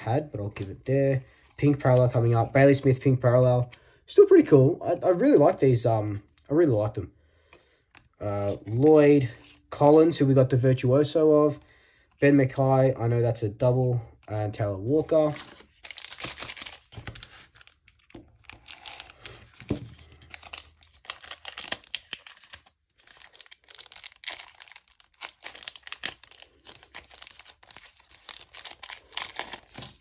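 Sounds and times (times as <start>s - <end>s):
foil wrapper crinkling and tearing: 15.6s - 30.0s.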